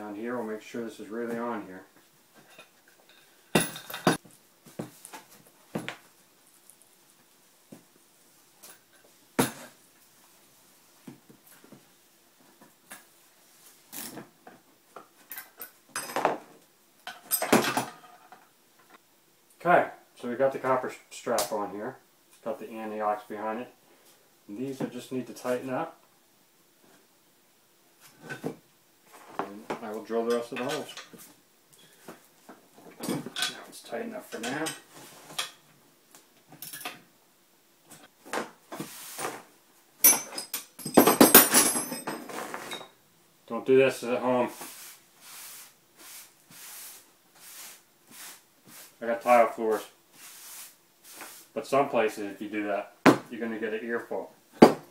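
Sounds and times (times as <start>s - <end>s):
tools clinking against metal bar: 40.0s - 42.9s.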